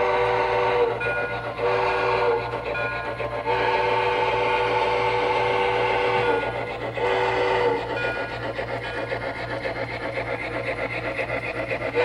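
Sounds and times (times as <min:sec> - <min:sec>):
model locomotive horn blasts: 0:00.0 - 0:08.4
steady low hum: 0:00.0 - 0:12.0.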